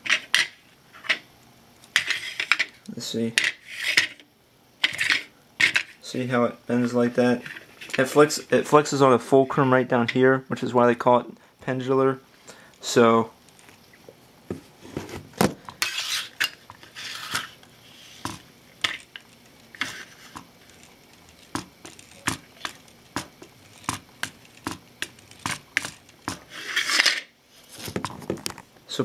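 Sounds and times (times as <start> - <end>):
short plastic scrapes: 14.8 - 18.4, 24.6 - 28.0
plastic toy axle clattering: 18.2 - 27.3.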